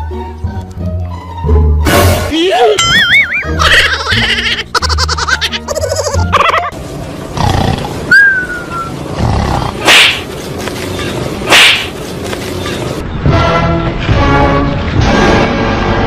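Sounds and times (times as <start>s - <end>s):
animal growling and roaring: 9.1s - 10.2s.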